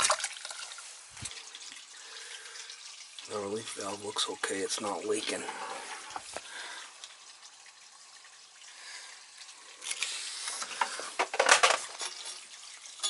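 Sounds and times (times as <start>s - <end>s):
water trickling into bucket: 0.0s - 13.0s
rustling and knocking handling noise: 10.6s - 12.2s.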